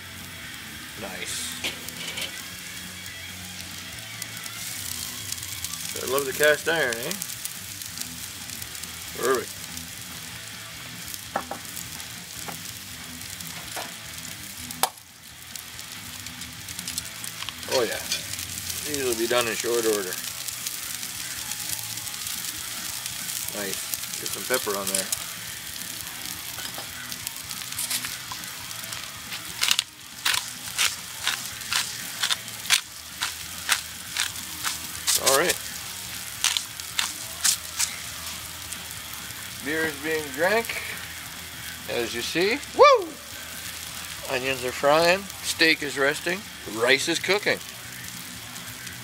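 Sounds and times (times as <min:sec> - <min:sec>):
onions sizzling in a skillet: 0:00.0 - 0:49.0
pepper mill grinding: 0:16.8 - 0:20.2, 0:26.5 - 0:38.6.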